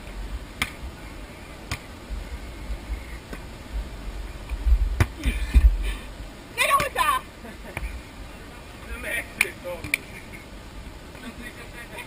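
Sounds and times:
volleyball hit by hand: 0:00.6 - 0:00.8, 0:01.7 - 0:01.9, 0:05.0 - 0:05.3
low rumble: 0:02.0 - 0:06.3.

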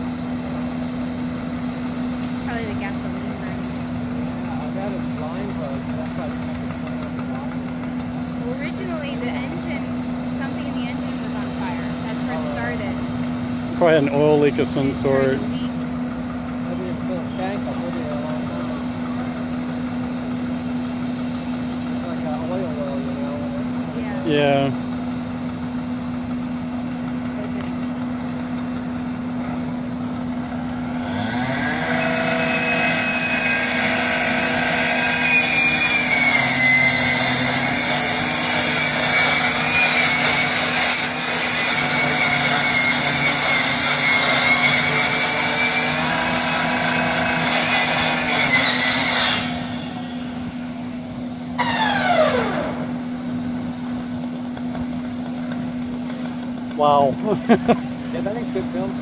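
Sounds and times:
rescue saw cutting metal: 0:00.0 - 0:53.3
fire engine pump humming: 0:00.0 - 0:59.0.

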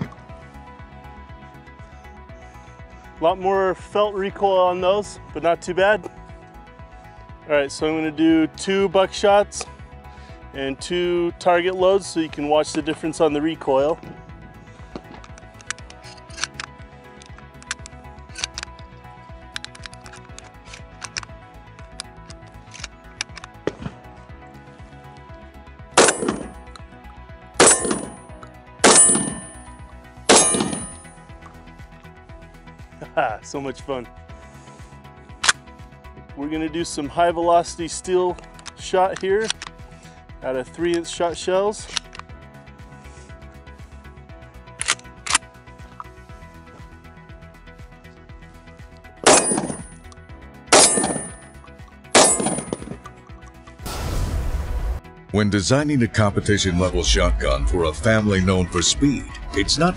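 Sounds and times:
shotgun shots with echo: 0:26.0 - 0:26.6, 0:27.6 - 0:28.2, 0:28.8 - 0:29.6, 0:30.3 - 0:31.0, 0:49.2 - 0:49.9, 0:50.7 - 0:51.4, 0:52.2 - 0:52.9.

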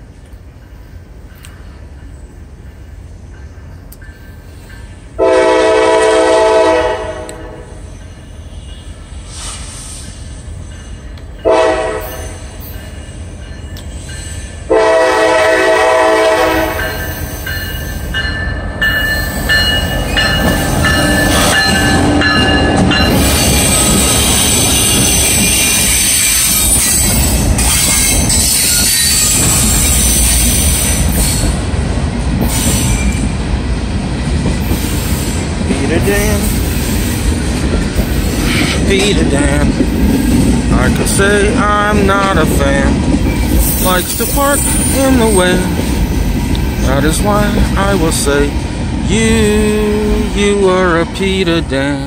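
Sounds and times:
train horn blasts: 0:05.2 - 0:07.8, 0:11.4 - 0:12.4, 0:14.7 - 0:17.0
train wheels clattering and squealing: 0:07.8 - 0:14.7, 0:16.7 - 0:31.7, 0:32.3 - 0:33.4, 0:34.3 - 0:40.7, 0:43.0 - 0:48.2
locomotives rumbling past: 0:17.9 - 0:52.0.

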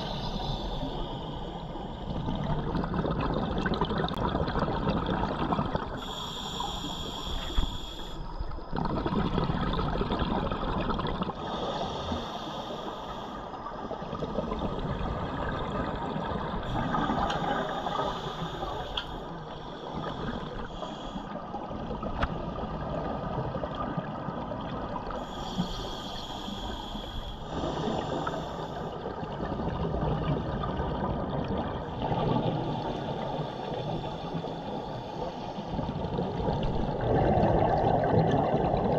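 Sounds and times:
regulator breathing hiss: 0:00.0 - 0:02.1, 0:06.0 - 0:08.6, 0:11.4 - 0:13.6, 0:16.6 - 0:21.5, 0:25.1 - 0:29.1
bubbling exhaled air underwater: 0:00.0 - 0:19.1, 0:19.8 - 0:35.1, 0:35.7 - 0:38.9.

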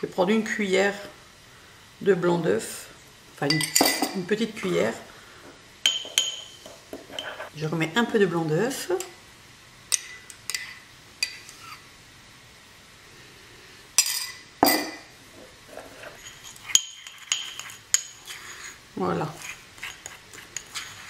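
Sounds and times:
spoon clinking on ceramic dish: 0:03.5 - 0:04.2, 0:05.8 - 0:07.4, 0:16.2 - 0:18.3
spoon scraping bowl: 0:05.9 - 0:07.5, 0:10.0 - 0:11.8, 0:14.2 - 0:21.0.

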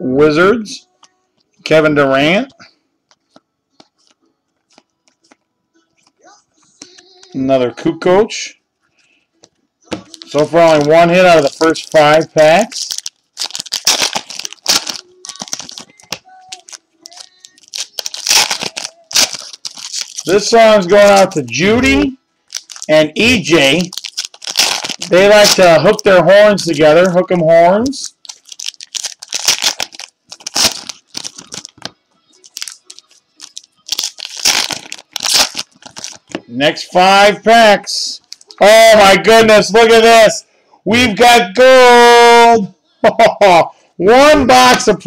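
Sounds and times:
foil wrappers crinkling: 0:10.0 - 0:21.6, 0:22.4 - 0:27.2, 0:27.8 - 0:36.4.

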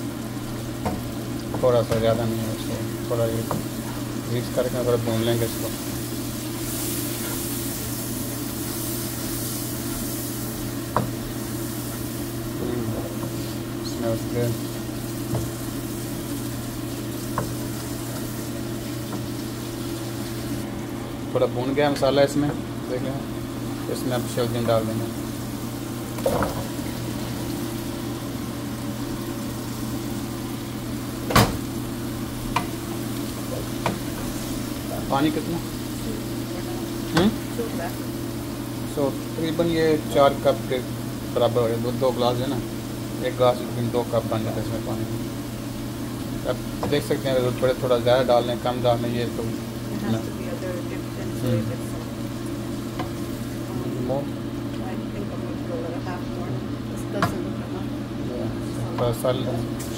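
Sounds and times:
low machine hum: 0:00.0 - 0:59.9
masala sizzling in frying pan: 0:00.0 - 0:59.9.

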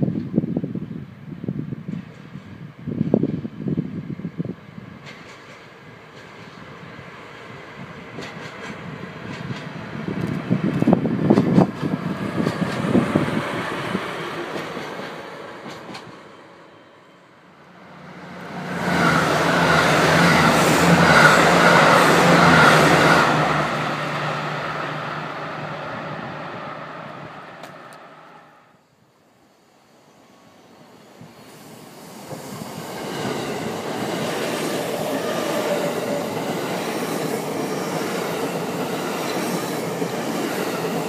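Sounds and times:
diesel train passing at speed: 0:00.0 - 0:41.0
wheels clicking over rail joints: 0:08.1 - 0:13.1, 0:14.4 - 0:16.2.

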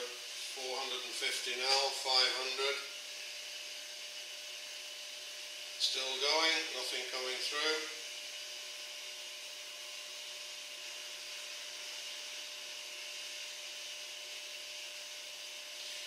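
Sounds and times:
water pump whirring: 0:00.0 - 0:16.0.

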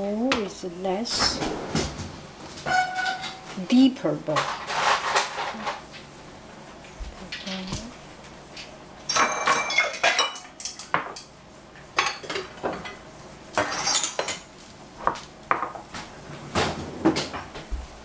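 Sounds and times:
kitchenware clattering on tiles: 0:02.6 - 0:03.5, 0:04.3 - 0:05.8, 0:09.1 - 0:11.3, 0:12.0 - 0:13.0, 0:13.6 - 0:14.5.

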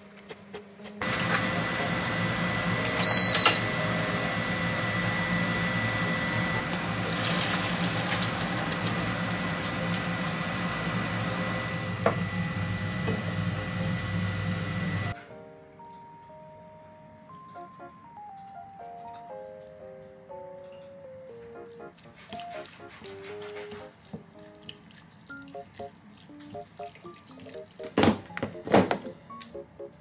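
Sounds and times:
kitchen appliance humming: 0:01.0 - 0:15.2
brief electronic tone: 0:02.8 - 0:03.8
water rushing into strainer: 0:06.9 - 0:09.9.

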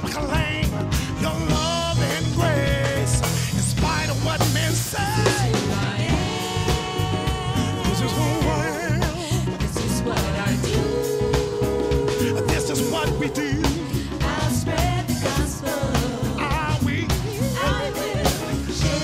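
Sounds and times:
bass guitar: 0:00.0 - 0:19.0
drum kit: 0:00.0 - 0:19.0
group of singers singing: 0:00.0 - 0:19.0
piano: 0:00.0 - 0:19.0.

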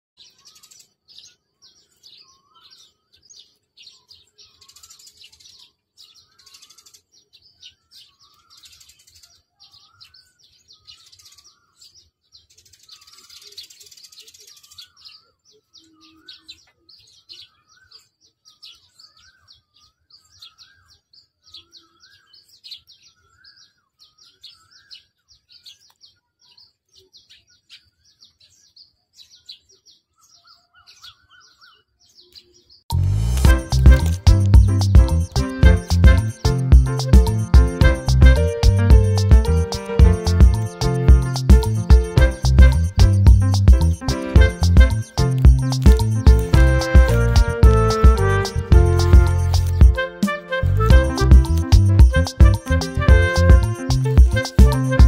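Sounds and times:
birds chirping: 0:00.2 - 0:55.0.

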